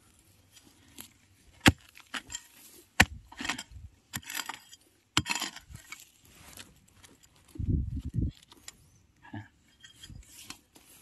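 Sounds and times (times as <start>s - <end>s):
scrape of earth and grit: 0.0s - 8.8s, 9.7s - 11.0s
hoe striking stony soil: 0.6s - 6.1s.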